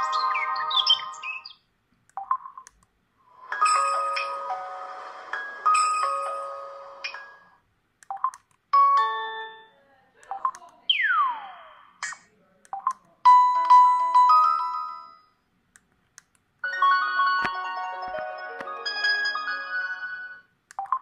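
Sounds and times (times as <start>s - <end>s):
ringtone melody: 0.0s - 1.5s, 3.3s - 7.6s, 8.2s - 9.8s, 13.3s - 15.3s, 16.6s - 21.0s
phone alert tones: 3.5s - 4.8s, 16.6s - 21.0s.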